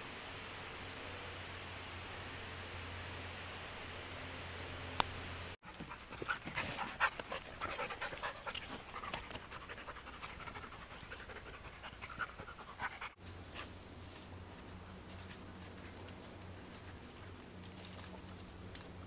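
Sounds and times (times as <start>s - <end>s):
dog panting: 5.6s - 13.7s.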